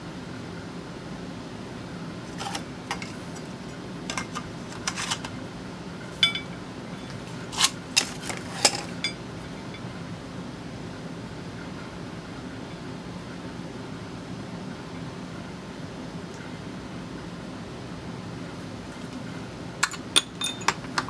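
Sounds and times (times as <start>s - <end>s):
steady low hum: 0.0s - 21.0s
metal tools clicking and clinking: 4.1s - 5.3s, 6.2s - 6.6s, 7.6s - 9.8s, 19.8s - 21.0s.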